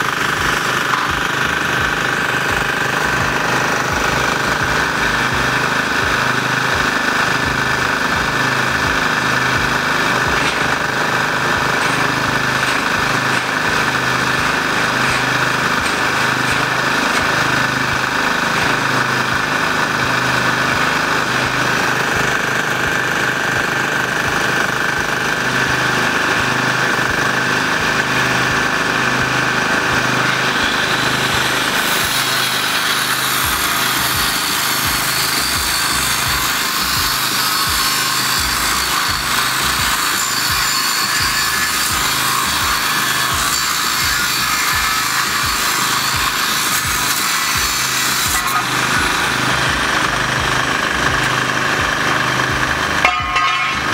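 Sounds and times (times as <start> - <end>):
angle grinder cutting steel: 0.0 - 53.9
petrol generator running: 0.0 - 53.9.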